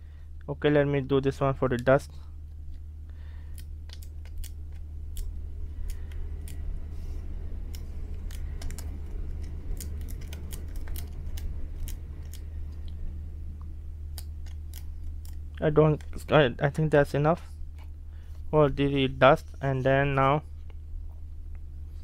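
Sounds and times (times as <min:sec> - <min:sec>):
steady low hum: 0:00.0 - 0:22.0
adhesive sticker clicks and crinkles: 0:03.5 - 0:06.6, 0:07.6 - 0:12.5, 0:14.1 - 0:16.4.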